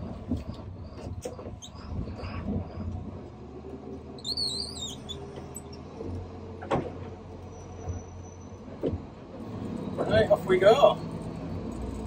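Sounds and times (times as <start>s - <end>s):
high wavering squeak: 4.2s - 5.8s.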